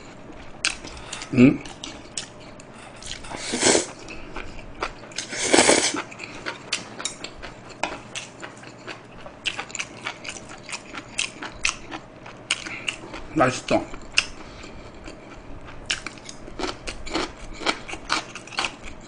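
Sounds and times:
wet chewing with mouth clicks: 0.4 - 19.0
person slurping food: 3.0 - 4.0, 5.2 - 6.0.

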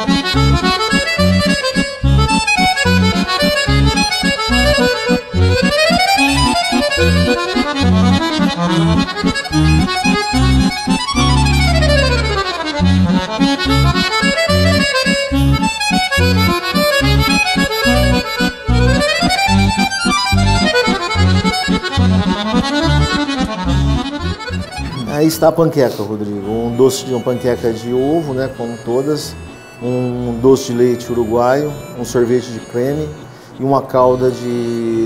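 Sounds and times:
pulsing bass line: 0.0 - 25.1
accordion music: 0.0 - 35.0.

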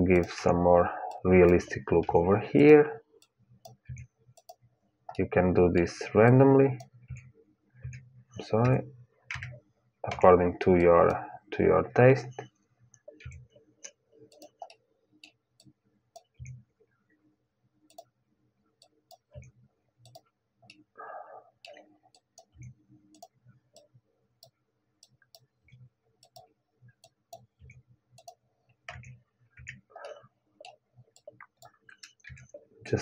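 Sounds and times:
keyboard key presses: 0.2 - 0.4, 14.3 - 14.8
mouse clicks: 0.2 - 0.5, 1.1 - 2.1, 3.6 - 5.3, 14.3 - 16.6, 17.9 - 18.1, 18.8 - 19.4, 20.1 - 20.8, 21.7 - 32.4.

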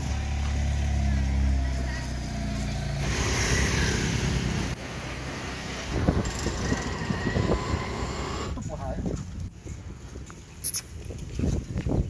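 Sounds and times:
motor scooter riding: 0.0 - 8.8
wind rushing over microphone: 5.8 - 10.3, 10.9 - 12.0
wind buffeting microphone: 5.9 - 12.0.

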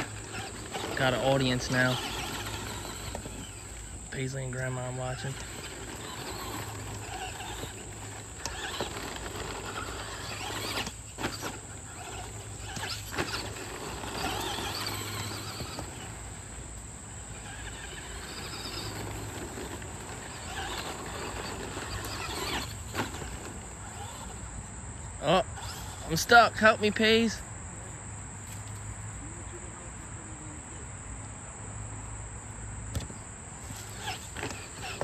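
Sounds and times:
tyres scuffing dirt: 0.0 - 24.4, 33.0 - 35.0
rc truck motor whine: 0.0 - 27.4, 32.9 - 35.0.

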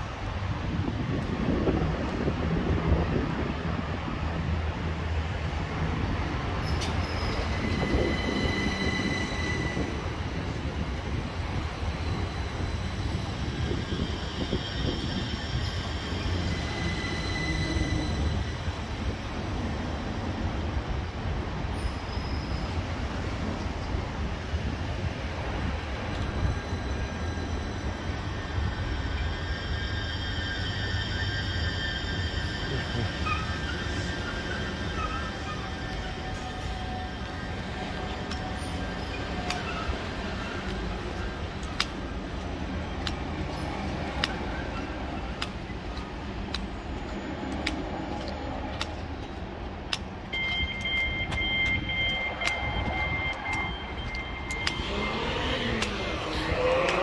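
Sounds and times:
train low rumble: 0.0 - 57.0
sharp clicks: 47.5 - 54.9.

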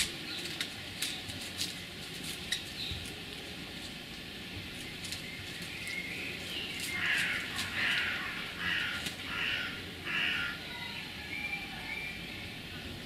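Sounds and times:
crow cawing: 6.9 - 10.8.

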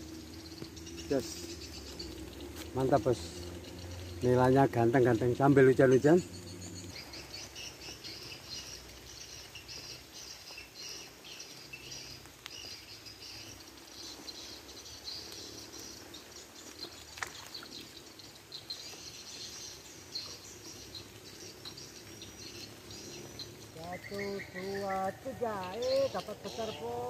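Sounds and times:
birds and insects chirping: 0.0 - 27.0.

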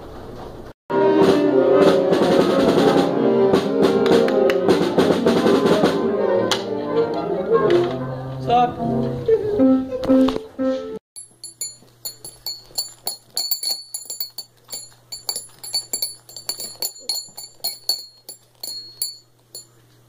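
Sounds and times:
metallic clinks with bell-like ring: 11.2 - 19.7
steady low hum: 11.2 - 20.0.

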